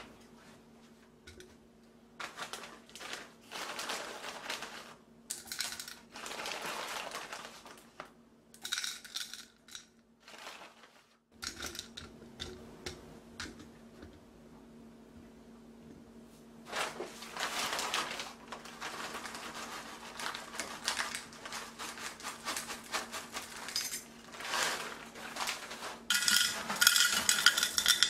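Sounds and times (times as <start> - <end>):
faint steady hum: 0.0 - 28.0
sugar chunks clattering in glass jar: 23.5 - 24.1, 26.1 - 28.0.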